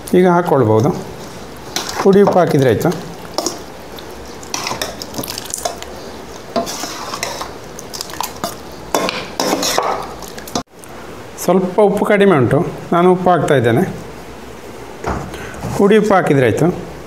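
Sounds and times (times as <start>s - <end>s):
spoon stirring thick pickle: 0.0s - 10.7s.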